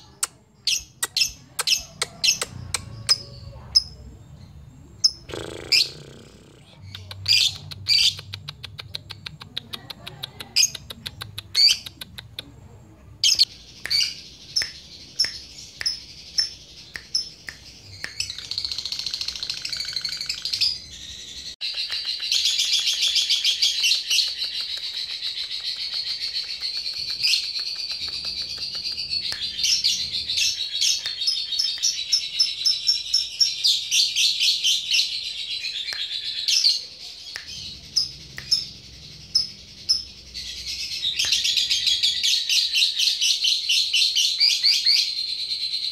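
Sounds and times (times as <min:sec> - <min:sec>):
lovebird chattering trill: 0:00.0 - 0:04.0, 0:04.9 - 0:12.4, 0:37.4 - 0:45.1
lovebird chirping and chattering: 0:00.0 - 0:45.9.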